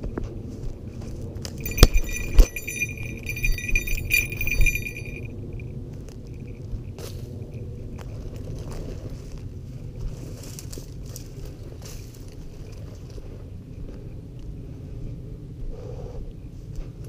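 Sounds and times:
bell jingling rapidly: 1.6 - 5.3.

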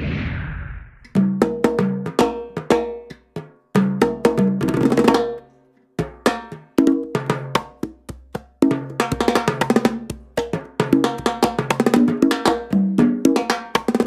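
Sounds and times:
conga drums: 1.0 - 5.4, 6.0 - 14.0
stick strikes on timbales: 6.0 - 14.0.

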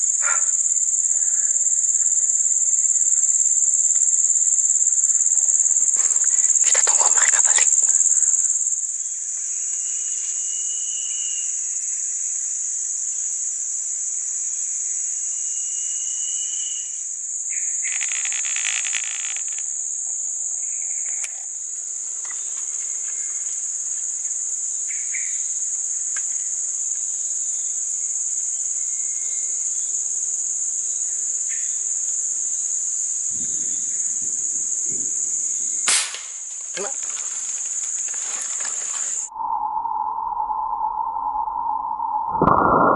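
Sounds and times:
insects droning: 0.0 - 42.9
sharp click: 35.9 - 36.4.

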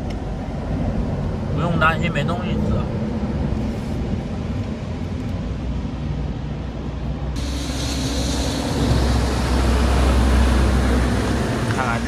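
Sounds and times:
low rumble: 2.5 - 12.0.

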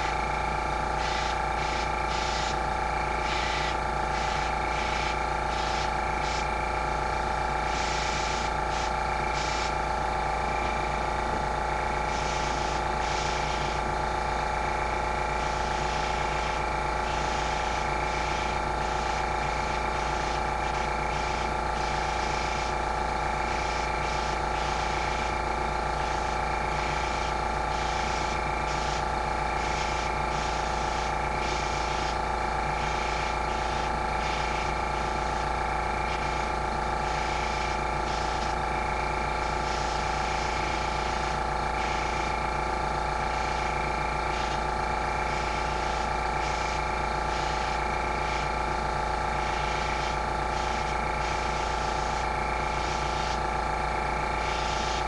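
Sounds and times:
air compressor humming: 0.0 - 55.0
airbrush spraying hiss: 1.0 - 6.5, 7.6 - 9.8, 12.0 - 13.8, 15.4 - 22.8, 23.4 - 25.3, 26.0 - 32.2, 32.8 - 38.6, 39.4 - 42.3, 43.2 - 44.6, 45.2 - 48.5, 49.4 - 53.4, 54.4 - 55.0.

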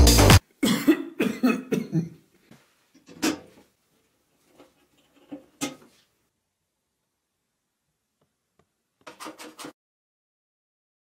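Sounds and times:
man coughing: 0.6 - 2.2.

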